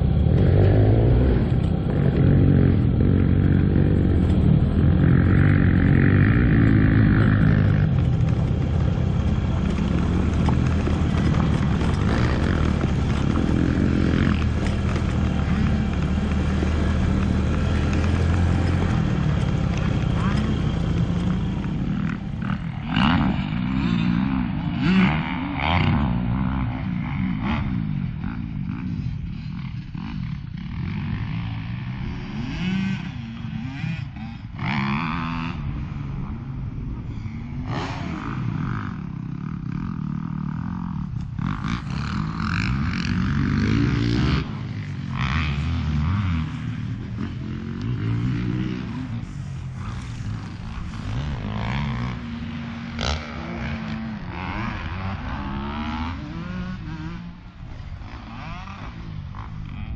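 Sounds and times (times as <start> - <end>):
scooter engine running: 0.0 - 23.8.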